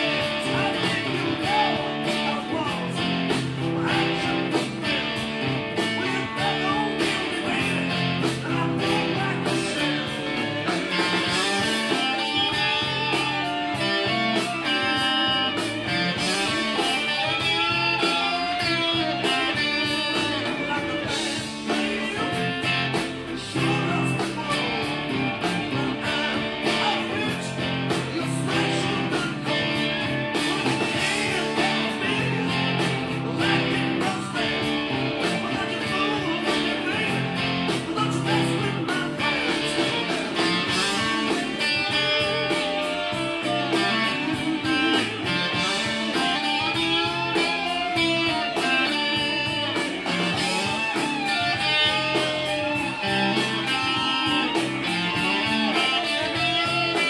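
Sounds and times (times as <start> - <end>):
blues rock band backing: 0.0 - 57.0
electric guitar with string bends: 0.0 - 57.0.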